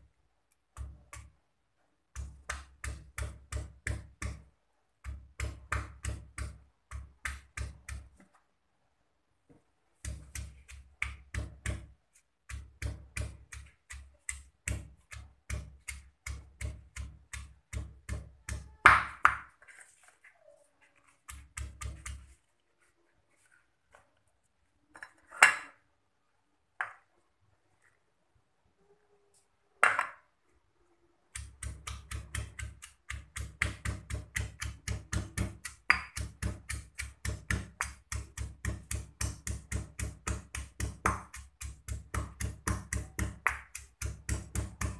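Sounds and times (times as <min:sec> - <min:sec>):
stone pestle pounding in mortar: 0:00.8 - 0:01.3, 0:02.1 - 0:08.1, 0:10.0 - 0:11.9, 0:12.5 - 0:19.5, 0:21.3 - 0:22.2, 0:31.4 - 0:44.9.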